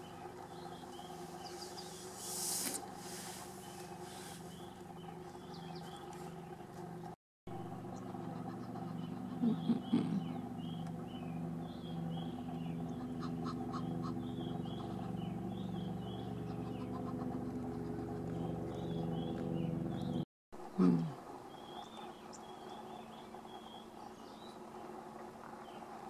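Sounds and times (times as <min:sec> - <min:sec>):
small birds chirping: 0:00.0 - 0:07.1, 0:07.8 - 0:26.0
vehicle engine idling: 0:00.0 - 0:20.2.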